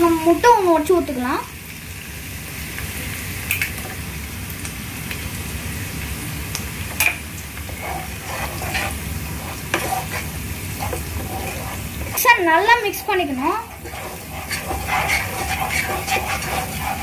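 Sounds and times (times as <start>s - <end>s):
food sizzling in oil: 0.0s - 17.0s
wooden spatula scraping a pan: 7.6s - 17.0s.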